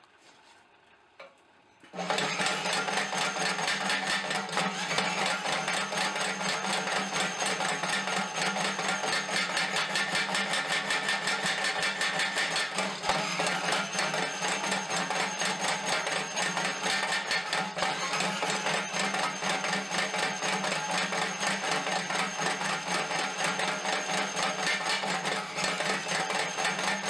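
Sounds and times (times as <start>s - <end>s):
power hammer striking hot steel: 2.2s - 17.8s.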